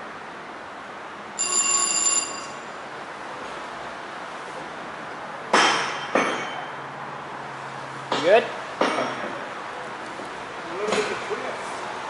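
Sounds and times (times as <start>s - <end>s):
steady background noise: 0.0s - 12.0s
high-pitched ringing tone: 1.4s - 2.9s.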